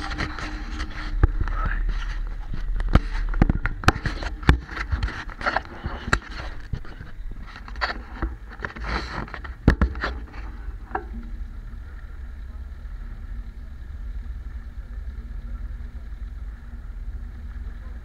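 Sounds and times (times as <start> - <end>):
sharp knocks and clatter: 0.0 - 11.3.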